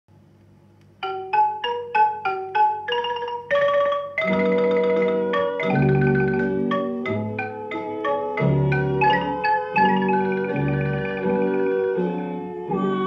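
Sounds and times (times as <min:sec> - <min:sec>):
record hum: 0:00.1 - 0:13.0
xylophone notes: 0:01.0 - 0:12.0.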